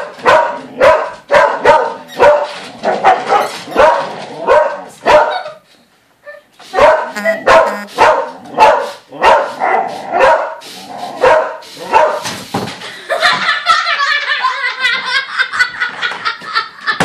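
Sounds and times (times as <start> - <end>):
dog barking: 0.1 - 5.6, 6.8 - 10.6, 11.2 - 12.2
high-pitched dog sounds: 6.2 - 10.6.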